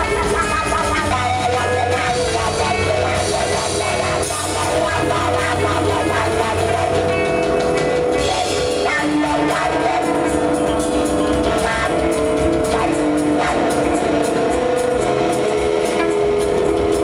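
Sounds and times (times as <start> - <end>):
bass: 0.0 - 17.0
drum kit: 0.0 - 17.0
electric guitar sustained notes: 0.0 - 17.0.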